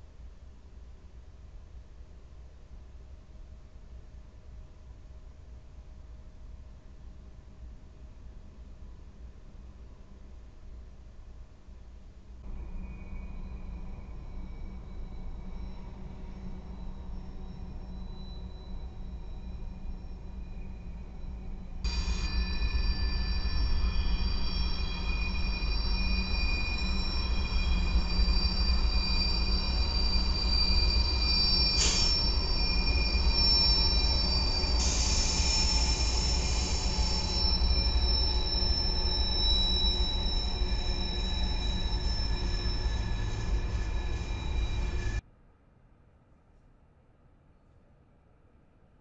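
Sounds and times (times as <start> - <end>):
low rumble of train: 0.0 - 45.6
train wheels squealing on rail: 12.4 - 45.2
hiss: 21.9 - 45.2.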